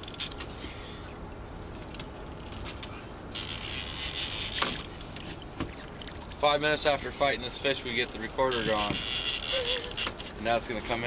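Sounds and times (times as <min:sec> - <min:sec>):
fishing reel ratcheting: 0:03.3 - 0:05.1, 0:08.5 - 0:10.2.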